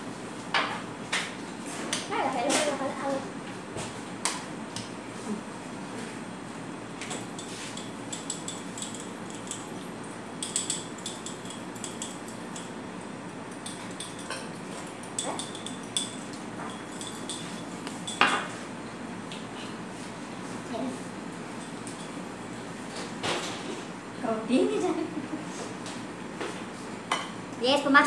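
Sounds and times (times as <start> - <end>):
steady background hum: 0.0 - 28.0
dishes and cutlery clinking: 7.0 - 9.8, 10.4 - 12.8, 13.5 - 18.6.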